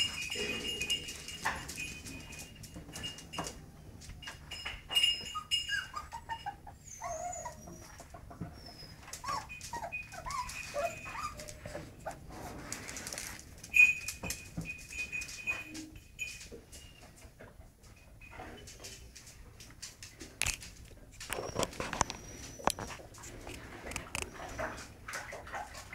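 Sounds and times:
puppies whining and yelping: 0:00.0 - 0:03.6, 0:04.2 - 0:12.8, 0:21.2 - 0:25.9
sharp high squeak: 0:04.3 - 0:07.7, 0:08.6 - 0:11.8
paws scratching on concrete: 0:05.3 - 0:15.8, 0:18.6 - 0:25.9.

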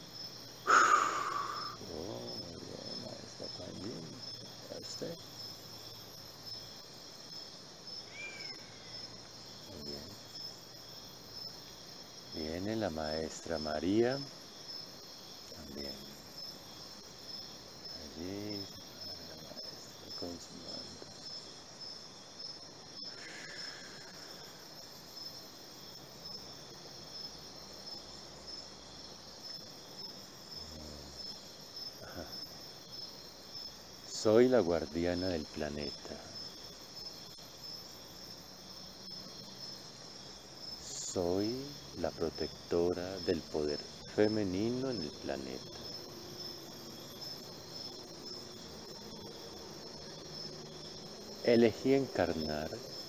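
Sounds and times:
crickets chirring: 0:00.0 - 0:53.0.

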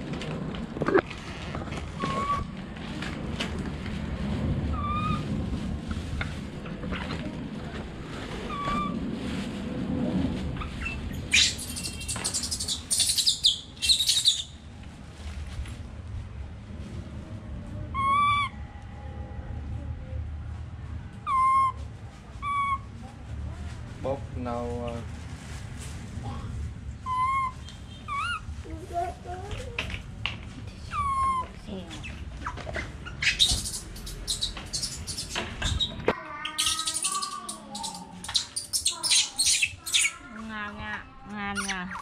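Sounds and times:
monkey screeching: 0:04.8 - 0:05.2, 0:08.5 - 0:09.0, 0:10.6 - 0:14.6, 0:18.0 - 0:18.5, 0:21.3 - 0:21.8, 0:22.4 - 0:22.8, 0:27.0 - 0:28.4, 0:30.9 - 0:40.4, 0:41.6 - 0:42.0
baby monkey crying: 0:08.5 - 0:09.0, 0:10.8 - 0:14.6, 0:17.9 - 0:18.5, 0:21.3 - 0:21.8, 0:22.4 - 0:22.8, 0:27.0 - 0:28.5, 0:30.9 - 0:42.0.

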